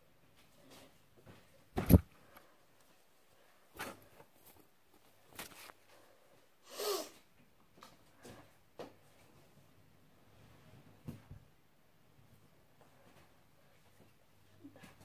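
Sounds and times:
plush toy thump: 0:01.8 - 0:02.1.

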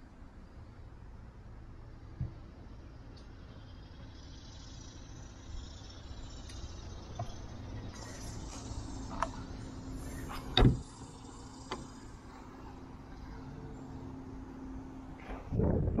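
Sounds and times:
steady low hum: 0:00.0 - 0:16.0
car hatch closing thud: 0:10.3 - 0:11.0.

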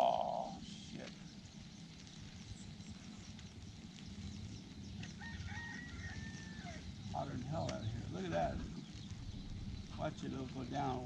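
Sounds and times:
low background rumble: 0:00.0 - 0:11.0
rooster crowing: 0:05.1 - 0:06.9.

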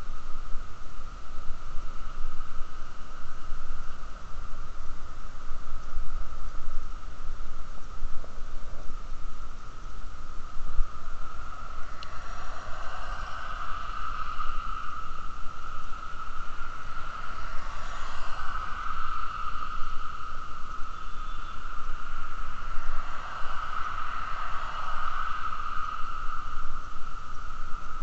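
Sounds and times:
wind rumbling on microphone: 0:00.0 - 0:28.0
high-pitched hum: 0:07.6 - 0:28.0
traffic passing: 0:15.8 - 0:26.5.

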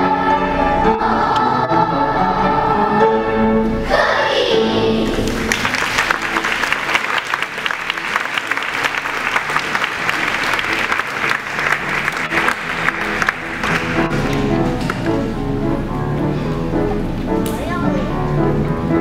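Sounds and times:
children's choir singing: 0:00.0 - 0:12.2
audience applauding: 0:05.0 - 0:15.1.

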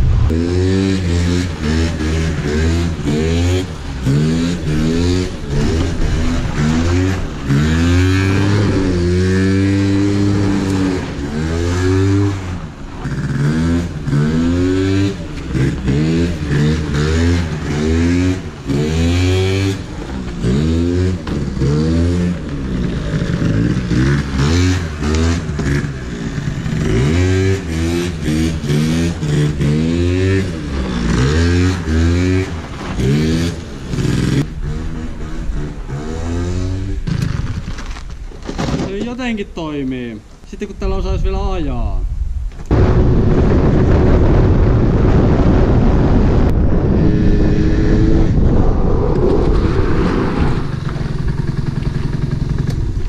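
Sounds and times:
scooter engine revving: 0:00.1 - 0:37.7, 0:49.3 - 0:53.0.

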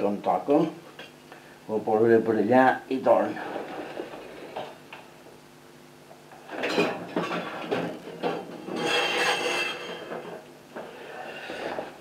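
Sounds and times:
objects scraping on workbench: 0:06.6 - 0:12.0.

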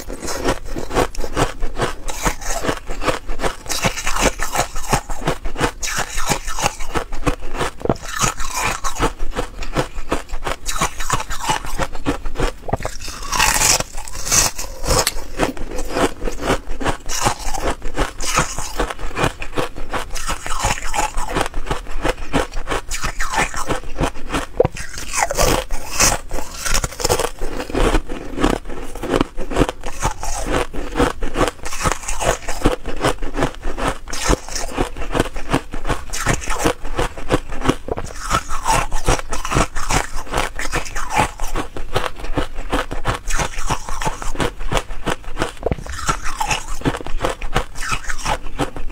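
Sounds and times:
ice crunching between teeth: 0:00.0 - 0:48.9.

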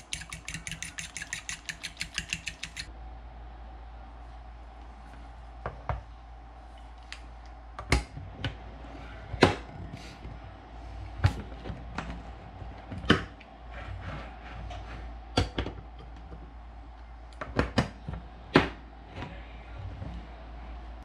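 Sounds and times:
manual can opener clicking: 0:00.0 - 0:02.9.

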